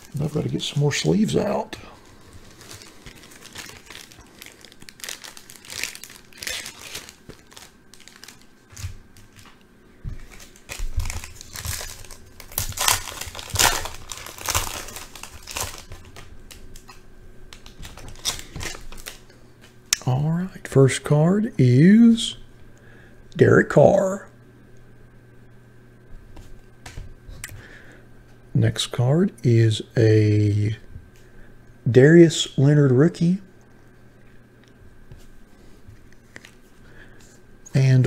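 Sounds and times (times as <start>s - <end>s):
foil wrapper crinkling: 0.0s - 19.4s.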